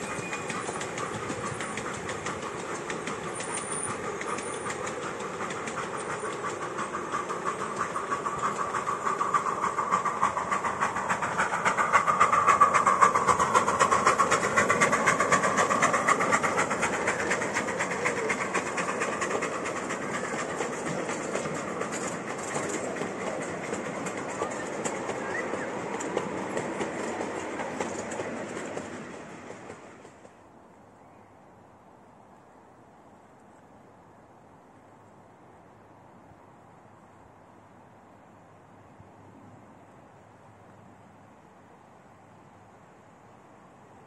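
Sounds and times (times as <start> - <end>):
wheels clattering on rails: 0.0 - 30.4.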